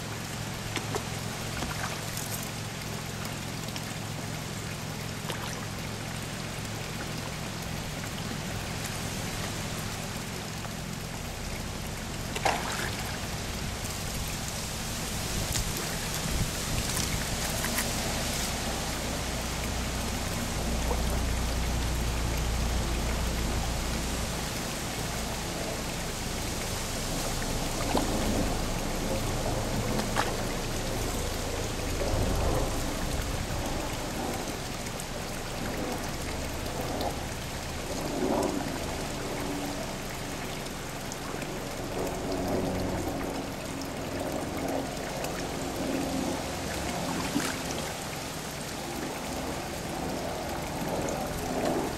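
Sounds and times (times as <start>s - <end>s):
water pouring into pond: 0.0s - 51.9s
fish splashing at surface: 12.2s - 13.8s.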